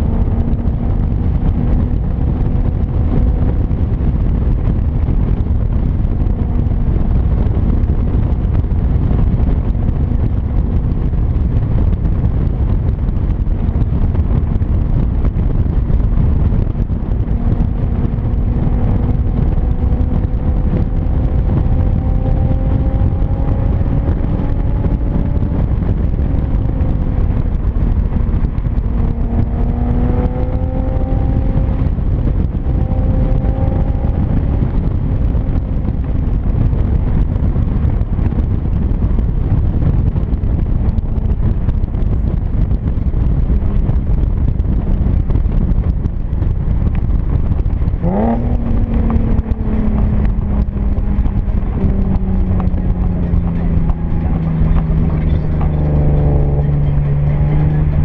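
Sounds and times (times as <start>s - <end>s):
car exhaust droning: 0.0s - 58.0s
wind and road noise: 0.0s - 58.0s.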